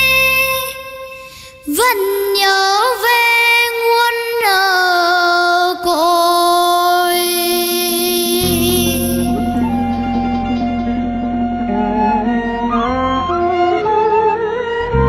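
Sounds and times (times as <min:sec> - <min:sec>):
girl singing into a microphone: 0:00.0 - 0:10.6
backing music: 0:08.4 - 0:15.0.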